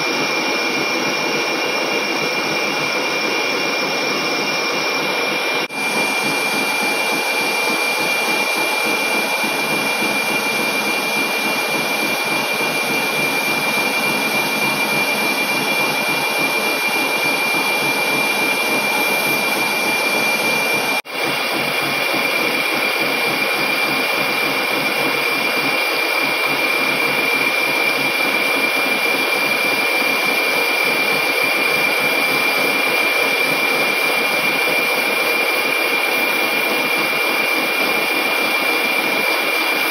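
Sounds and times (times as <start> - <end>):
high whine: 0.0 - 24.1
lathe cutting metal: 0.0 - 39.9.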